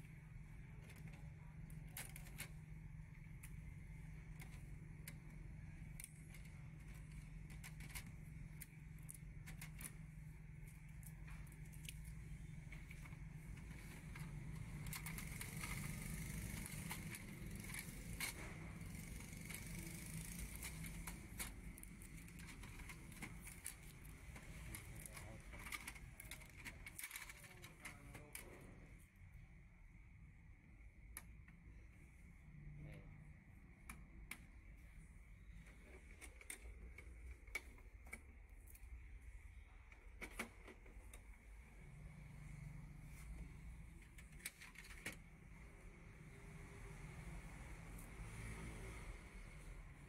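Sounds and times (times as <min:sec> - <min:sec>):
plastic printer being handled: 0:19.5 - 0:28.7.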